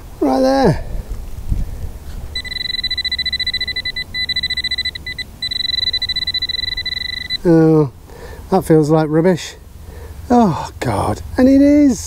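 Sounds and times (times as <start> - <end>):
metal detector pinpointer beeping: 2.4 - 7.5.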